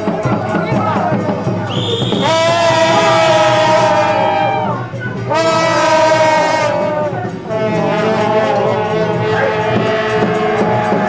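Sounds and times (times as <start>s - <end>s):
wind instrument long held notes: 0.0s - 11.0s.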